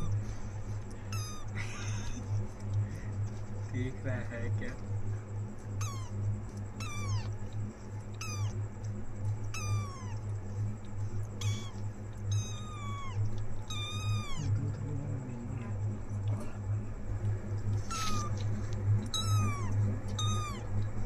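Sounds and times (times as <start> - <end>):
steady low hum: 0.0 - 21.0
kitten meowing: 1.1 - 2.2, 5.8 - 6.2, 6.8 - 7.5, 8.1 - 8.6, 9.5 - 10.3, 11.2 - 14.8, 17.7 - 20.9.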